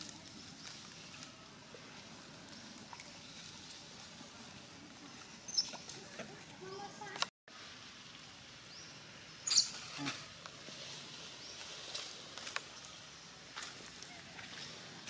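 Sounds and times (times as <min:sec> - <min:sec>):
clicks and rustles in leaf litter: 0:00.0 - 0:04.8, 0:09.7 - 0:15.0
monkeys squeaky calls: 0:09.4 - 0:09.8.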